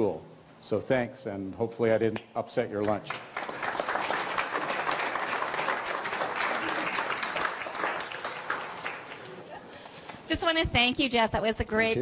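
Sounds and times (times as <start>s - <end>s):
audience applauding: 3.1s - 9.6s.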